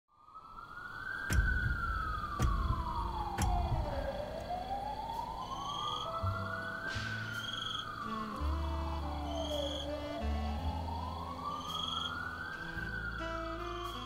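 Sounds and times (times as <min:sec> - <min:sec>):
emergency siren wailing: 0:00.5 - 0:14.0
sharp thumps: 0:01.3 - 0:04.2.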